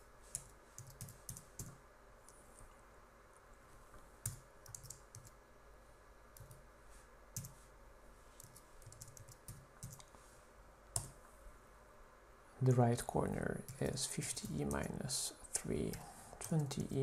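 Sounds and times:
typing on computer keyboard: 0.3s - 1.8s, 4.2s - 5.4s, 7.4s - 7.6s, 8.4s - 10.1s, 15.9s - 17.0s.

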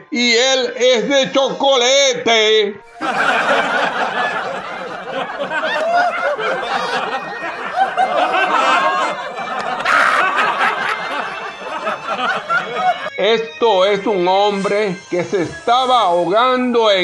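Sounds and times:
crowd laughing: 2.9s - 13.2s.

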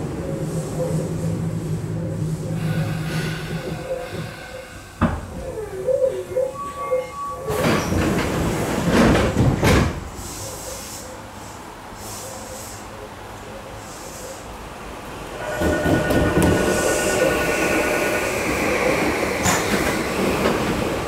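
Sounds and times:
short tones: 15.4s - 18.9s.

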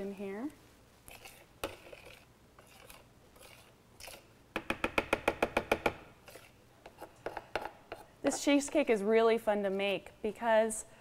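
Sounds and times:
metal spoon scraping plastic bowl: 1.1s - 4.2s, 6.2s - 8.8s.

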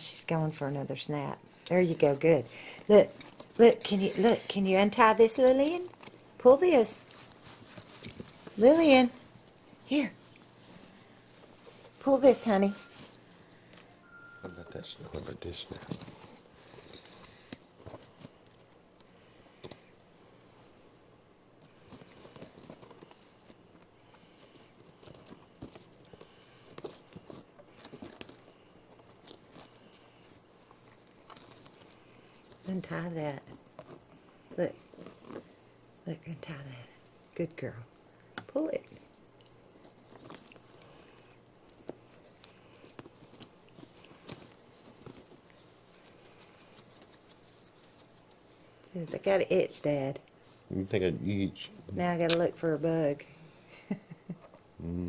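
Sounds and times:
fabric rustling: 6.4s - 14.4s, 41.8s - 48.8s.

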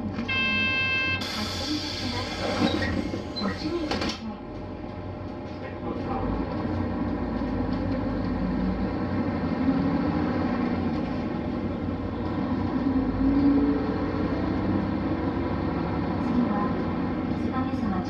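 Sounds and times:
bus diesel engine drone: 0.0s - 18.0s
road noise: 4.6s - 18.0s.

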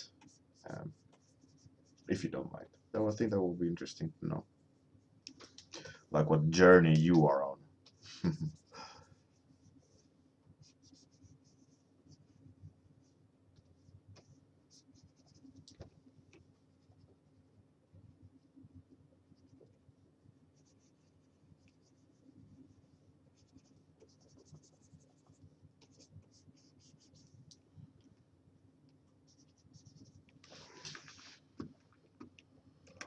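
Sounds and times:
low steady hum: 0.0s - 33.0s
stylus scratching on tablet: 0.1s - 2.2s, 9.3s - 12.4s, 13.0s - 15.7s, 20.5s - 27.4s, 29.2s - 31.4s.

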